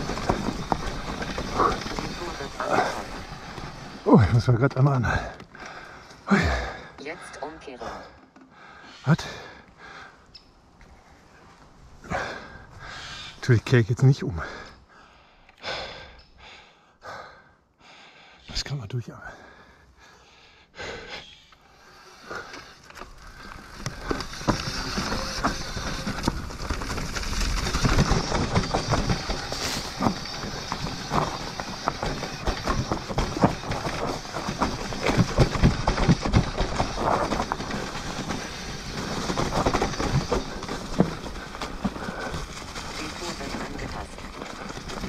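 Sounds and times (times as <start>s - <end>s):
bike rattling and knocking: 0.0s - 6.5s, 21.8s - 45.0s
bike tyres rushing on dirt: 0.0s - 6.9s, 21.7s - 45.0s.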